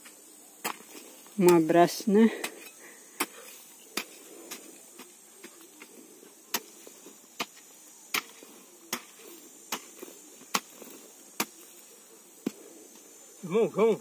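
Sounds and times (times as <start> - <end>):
hoe chopping into dry earth: 0.6 - 1.7, 6.5 - 11.8.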